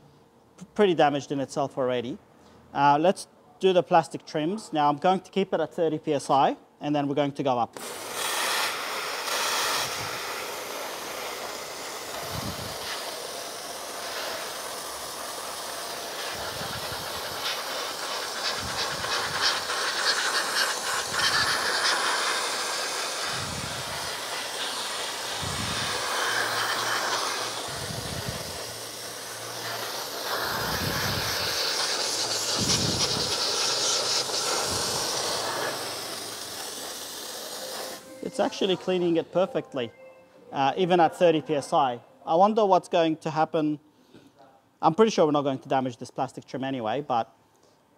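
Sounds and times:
dry ice blaster hissing: 7.8s - 39.2s.

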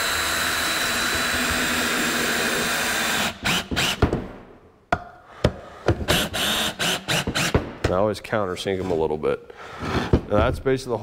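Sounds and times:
cordless drill driving screw: 0.0s - 4.0s, 6.1s - 7.6s.

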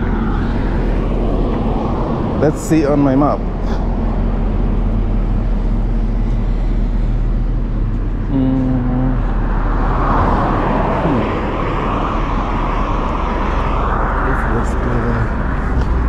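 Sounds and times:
highway traffic rumble: 0.0s - 16.0s
vehicle passing close: 9.1s - 16.0s.

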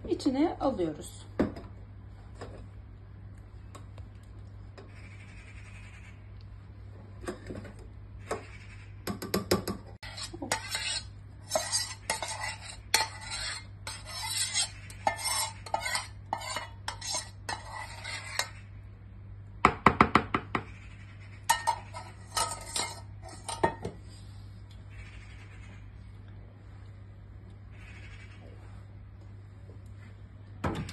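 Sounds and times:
steady low hum: 0.0s - 30.9s
utensil scraping steel pot: 10.0s - 18.7s, 21.4s - 23.9s.

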